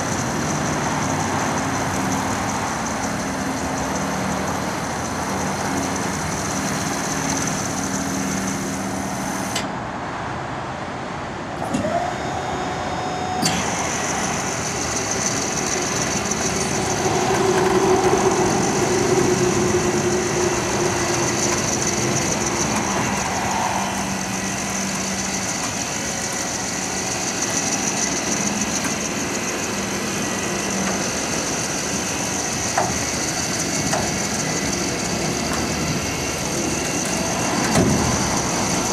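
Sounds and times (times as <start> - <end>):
truck lift humming: 11.6 - 38.9.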